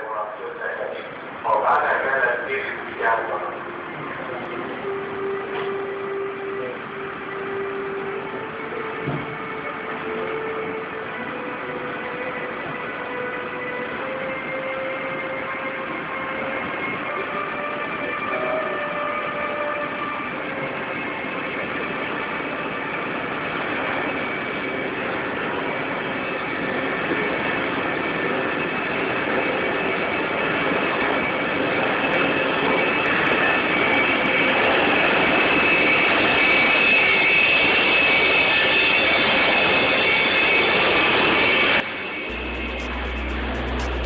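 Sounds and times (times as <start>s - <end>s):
electric train passing at speed: 0.7s - 21.2s.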